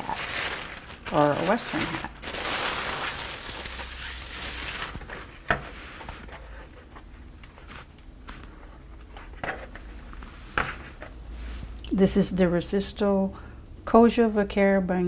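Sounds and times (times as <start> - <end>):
plastic bag crinkling: 0.0 - 5.5
straw hat rustling: 0.0 - 5.5.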